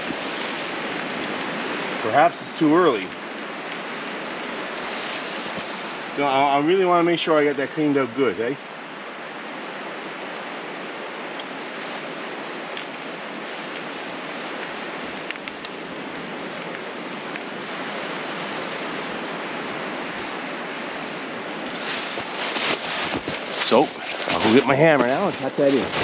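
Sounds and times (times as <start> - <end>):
steady rushing outdoor noise: 0.0 - 26.0
faint ticks: 14.5 - 18.3.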